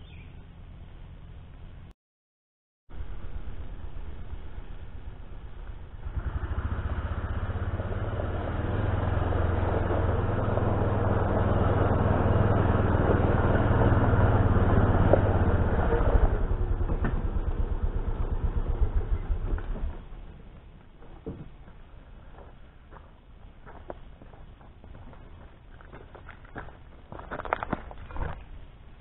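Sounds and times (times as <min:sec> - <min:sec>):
vehicle engine running: 0:02.9 - 0:21.0
tyres on gravel: 0:18.0 - 0:28.7.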